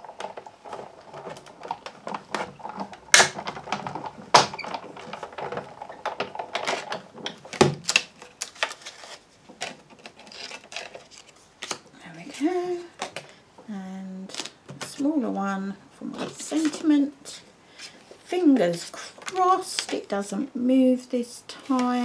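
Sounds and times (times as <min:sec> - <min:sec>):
plastic plates clacking: 0:00.0 - 0:08.9.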